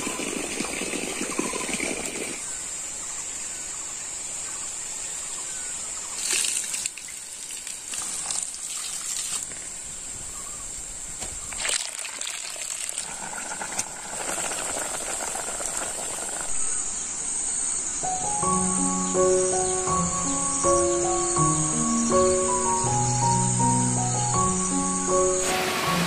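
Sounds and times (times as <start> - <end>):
broth boiling in a pot: 0.0 - 2.4, 11.8 - 16.8
splashes in a pot: 6.2 - 9.7, 11.5 - 16.5
high-pitched insect drone: 13.4 - 26.0.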